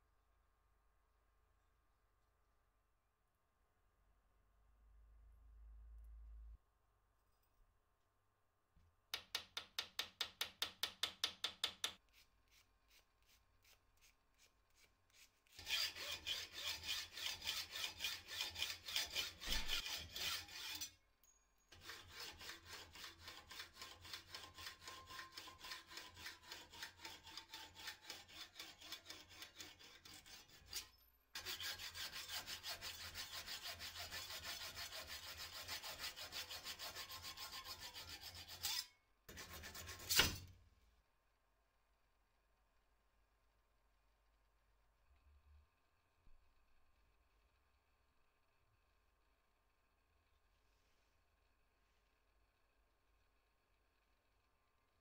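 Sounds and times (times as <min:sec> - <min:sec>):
metal rod rasping strokes: 0:11.9 - 0:21.0, 0:21.7 - 0:40.5.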